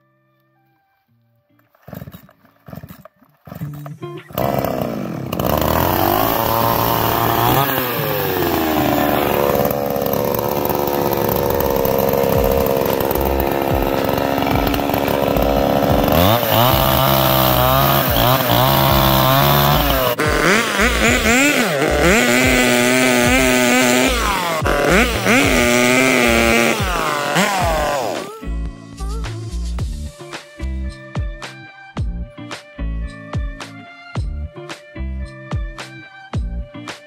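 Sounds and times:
chainsaw cutting timber: 1.7 - 3.7, 4.3 - 28.4
chainsaw revving: 1.8 - 3.6, 4.3 - 28.4.

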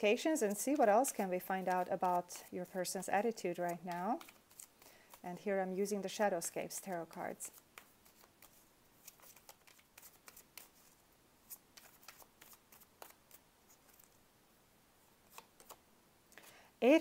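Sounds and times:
cards being shuffled: 0.2 - 14.2, 15.2 - 15.8.

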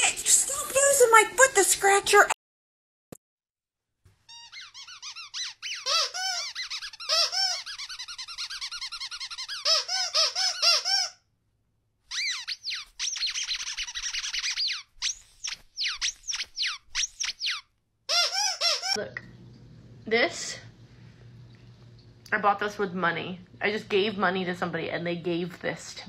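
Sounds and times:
rapid high-pitched squeaking: 4.2 - 10.9, 12.1 - 19.0.

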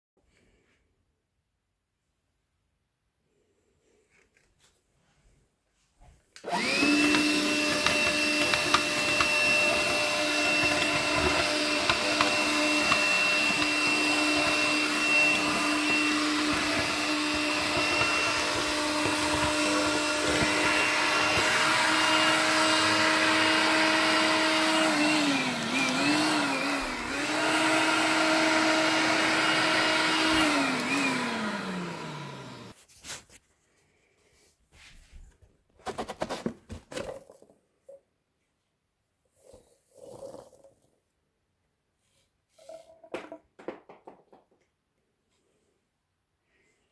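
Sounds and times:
vacuum motor whine: 6.4 - 32.8.

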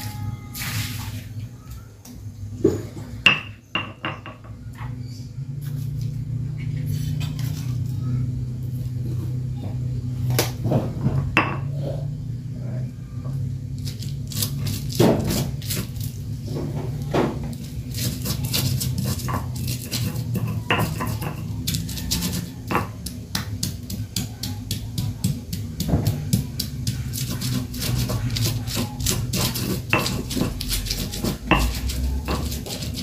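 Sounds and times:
steady low hum: 0.0 - 33.0
stone mortar and pestle knocking: 3.3 - 4.6, 16.8 - 33.0.

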